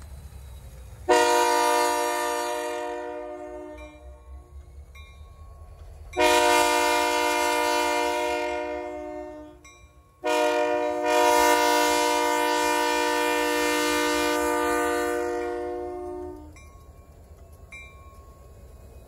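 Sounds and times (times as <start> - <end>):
low engine rumble: 0.0 - 19.0
locomotive air horn blasts: 1.1 - 4.1, 6.2 - 9.6, 10.2 - 16.6.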